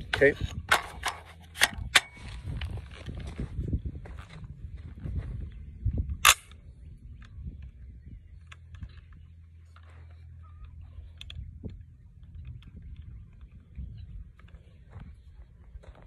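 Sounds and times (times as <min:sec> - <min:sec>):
rifle clicks and rattles: 0:00.0 - 0:03.1, 0:08.4 - 0:13.6
metallic clack of rifle action: 0:00.1 - 0:02.4.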